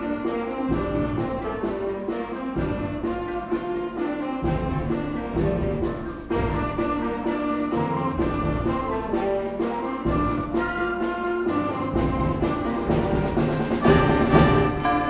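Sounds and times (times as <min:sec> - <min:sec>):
concert band playing: 0:00.0 - 0:15.0
percussion strikes: 0:00.0 - 0:15.0.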